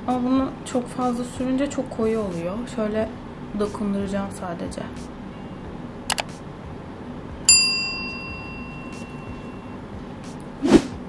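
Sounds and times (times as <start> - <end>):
notification bell ding: 7.5 - 9.7.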